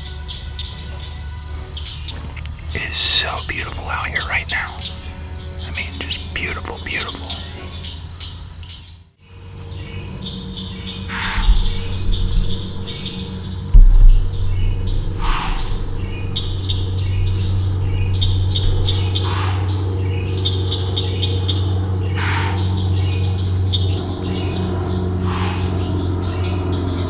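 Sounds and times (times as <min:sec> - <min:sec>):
falling insect call: 0:00.0 - 0:27.0
insects chirping trills: 0:00.0 - 0:27.0
insects droning: 0:00.0 - 0:27.0
low rumble: 0:09.3 - 0:27.0
loud low thump: 0:11.1 - 0:21.2.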